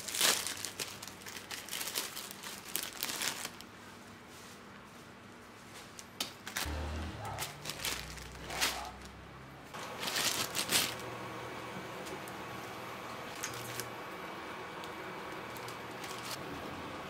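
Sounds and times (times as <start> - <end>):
plastic packets crinkling: 0.0 - 3.8, 5.9 - 6.7, 7.3 - 9.2, 9.8 - 11.2, 13.3 - 14.0, 14.8 - 16.4.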